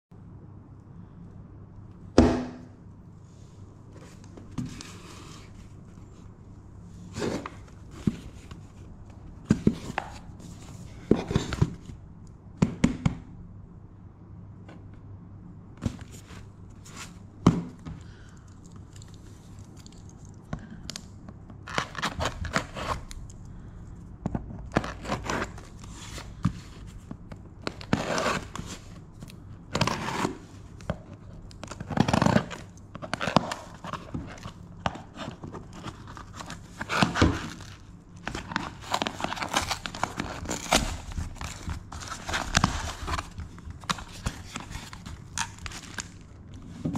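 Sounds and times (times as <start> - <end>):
packing tape scraping and tearing: 21.6 - 23.2, 24.7 - 26.8, 27.6 - 46.7.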